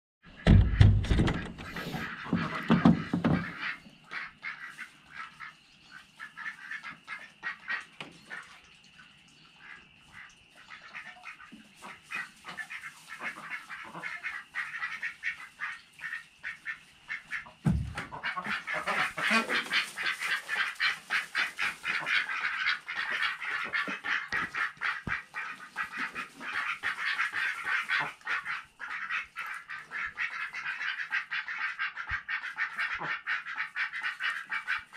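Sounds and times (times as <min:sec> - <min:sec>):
ducks quacking: 0:00.3 - 0:08.7, 0:09.3 - 0:34.9
wooden door latch rattling: 0:00.4 - 0:01.9
thump: 0:00.4 - 0:03.5, 0:17.6 - 0:18.1.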